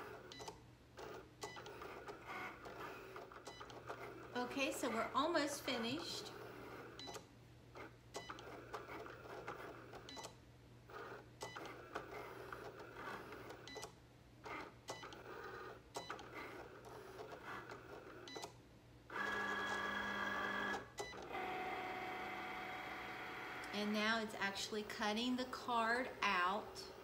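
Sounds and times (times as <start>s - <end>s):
cutting machine motors whirring: 1.0s - 7.2s, 14.5s - 18.5s, 19.1s - 25.4s.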